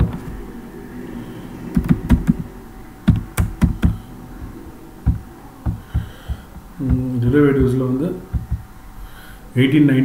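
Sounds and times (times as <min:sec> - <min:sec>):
keyboard keys clicking: 0:03.1 - 0:08.6.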